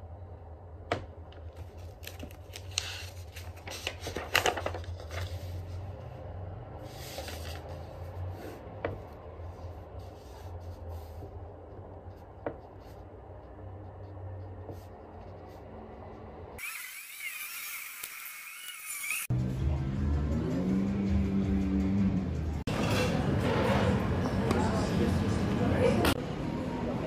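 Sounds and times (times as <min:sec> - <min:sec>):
paper rustling and sliding: 0:01.6 - 0:06.1, 0:06.8 - 0:08.6.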